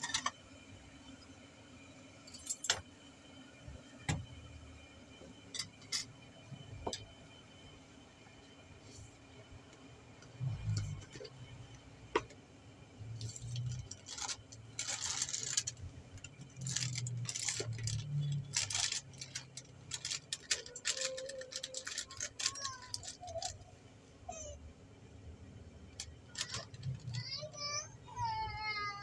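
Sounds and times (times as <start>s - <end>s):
packet crinkling and rustling: 13.4s - 15.9s, 16.6s - 23.5s, 26.3s - 27.2s
scissors cutting sachet: 16.6s - 23.5s.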